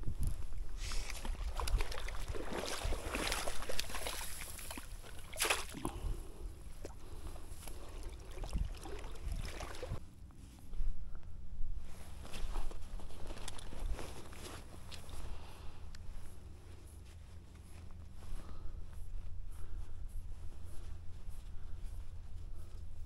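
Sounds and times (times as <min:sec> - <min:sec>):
river water splashing: 0:00.8 - 0:06.2, 0:07.6 - 0:10.0.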